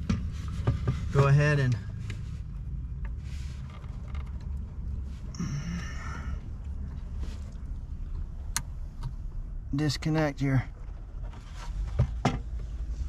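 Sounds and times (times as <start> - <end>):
low steady rumble: 0.0 - 13.0
dashboard plastic creaking: 2.9 - 5.2.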